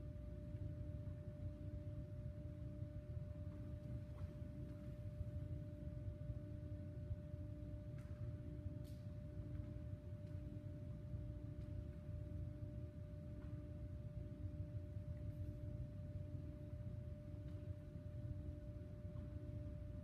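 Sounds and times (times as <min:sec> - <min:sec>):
low room rumble: 0:00.0 - 0:20.0.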